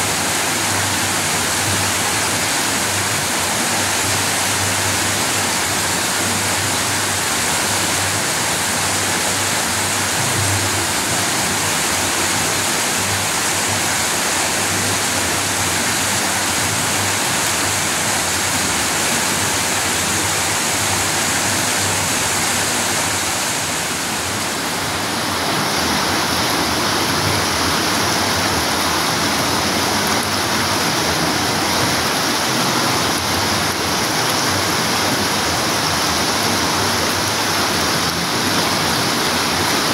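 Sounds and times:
river water rushing over rocks: 0.0s - 39.9s.

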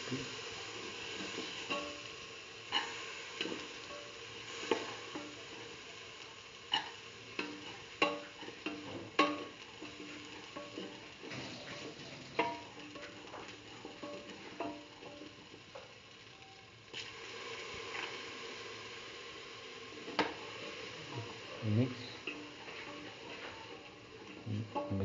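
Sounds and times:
food sizzling in oil: 0.0s - 25.0s
metal spatula scraping a pot: 6.7s - 15.2s.

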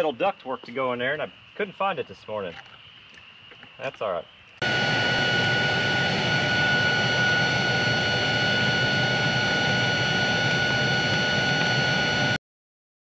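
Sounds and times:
cordless blower whine: 4.6s - 12.4s.

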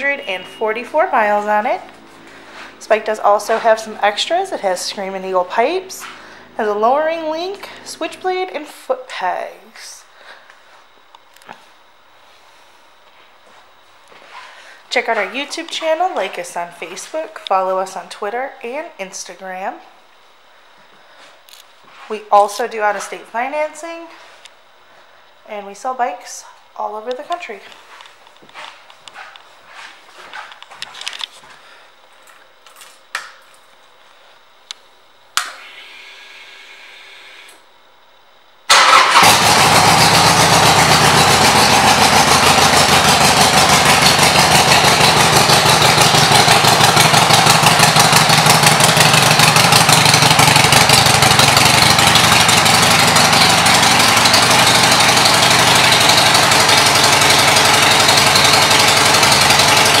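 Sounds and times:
brief hum: 0.0s - 1.0s
motorcycle engine idling loudly: 38.7s - 60.0s.

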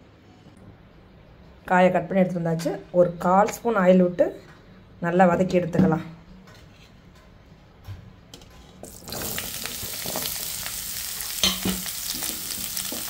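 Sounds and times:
vegetables sizzling in oil: 8.9s - 13.0s.

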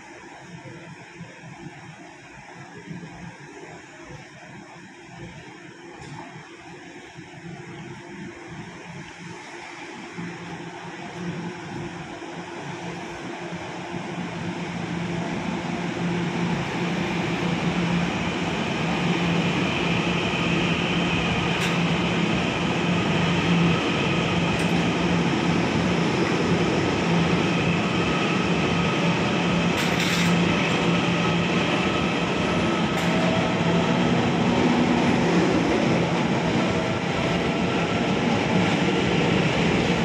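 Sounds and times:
train rumble: 8.6s - 40.0s.

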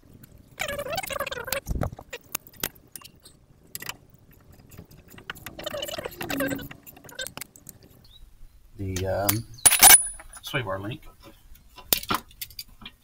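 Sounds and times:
hand tools clinking on steel: 9.3s - 10.5s.

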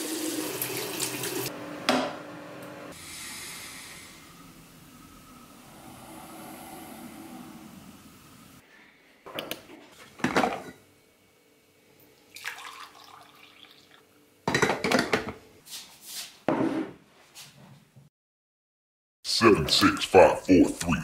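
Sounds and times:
coffee pouring into a mug: 12.2s - 14.1s.

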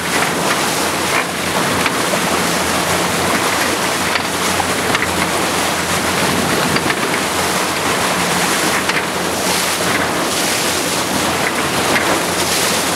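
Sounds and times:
boat engine hum: 0.0s - 12.9s
water rushing: 0.0s - 12.9s.

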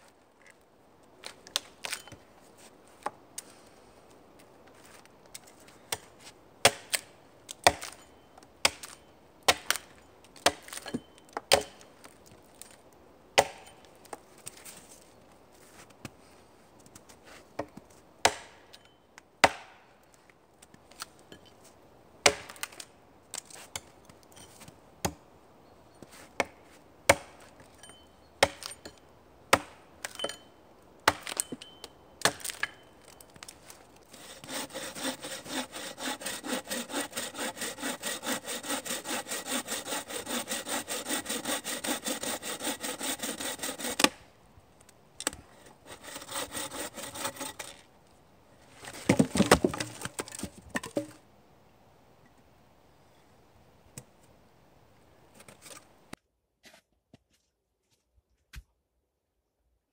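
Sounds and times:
bow saw sawing log: 34.1s - 44.2s, 45.5s - 47.8s
sharp wooden knocks: 49.0s - 51.2s.

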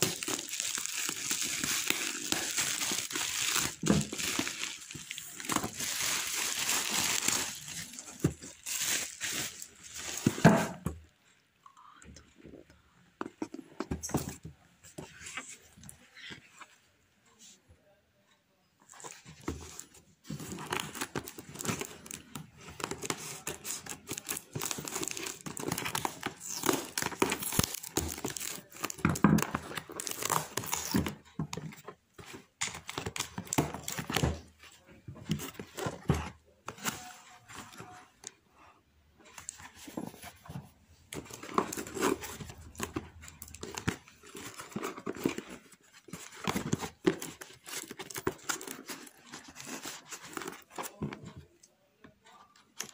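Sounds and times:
plastic packaging crinkling and tearing: 0.0s - 10.4s, 19.8s - 31.3s, 32.6s - 34.5s, 41.1s - 51.0s.

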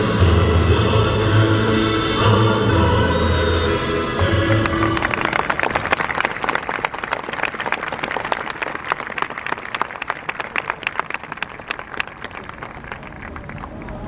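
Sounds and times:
stadium crowd applauding: 4.2s - 14.0s.

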